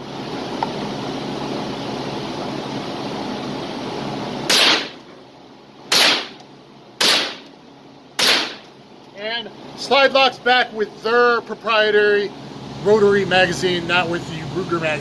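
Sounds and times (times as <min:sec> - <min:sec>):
rifle shots echoing indoors: 0:04.5 - 0:05.0, 0:05.9 - 0:06.4, 0:07.0 - 0:07.5, 0:08.2 - 0:08.6.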